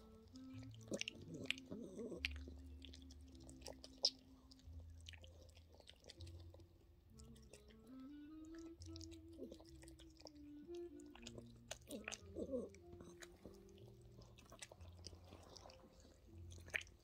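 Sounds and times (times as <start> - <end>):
faint steady hum: 0.0 - 17.0
dog licking wetly: 0.3 - 7.7.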